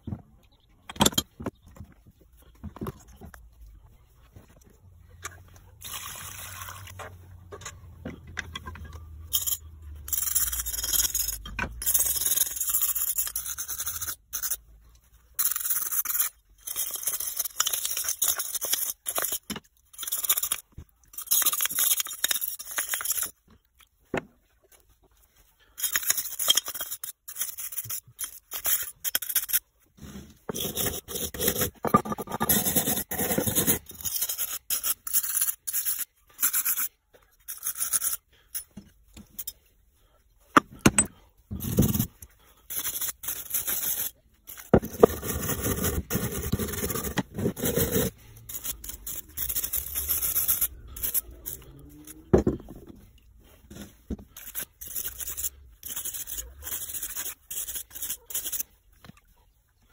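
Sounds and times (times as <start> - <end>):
stiff brush scraping metal: 26.0 - 34.7, 40.7 - 58.6.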